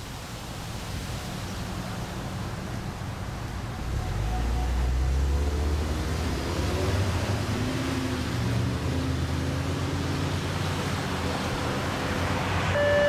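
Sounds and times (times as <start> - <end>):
road traffic rumble: 0.0 - 13.0
radio alert tone: 12.8 - 13.0.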